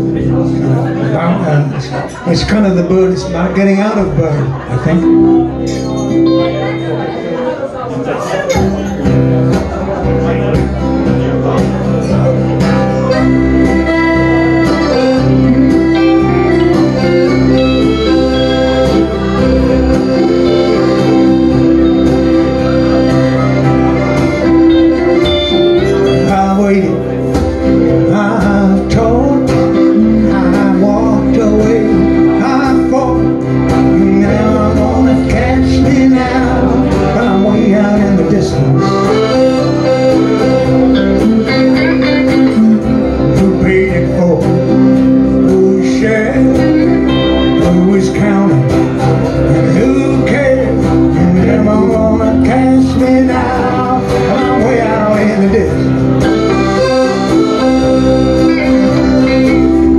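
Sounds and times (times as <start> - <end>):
man singing: 0.0 - 6.8, 13.0 - 59.9
accordion: 0.0 - 59.9
acoustic guitar: 0.0 - 59.9
electric guitar: 0.0 - 59.9.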